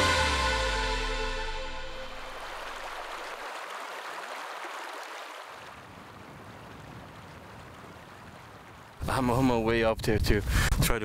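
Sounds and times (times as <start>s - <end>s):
river rushing over rocks: 2.0s - 5.8s.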